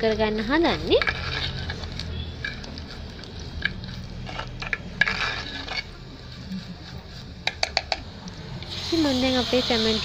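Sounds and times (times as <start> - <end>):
spoon scraping a pan: 0.4 - 8.0
onions sizzling in oil: 8.6 - 10.0.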